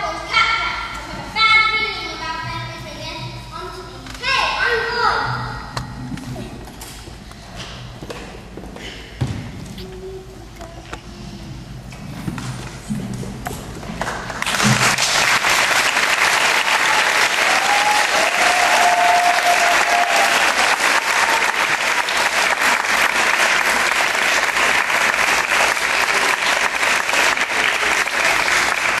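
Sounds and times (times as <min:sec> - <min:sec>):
audience applauding: 0:14.0 - 0:29.0.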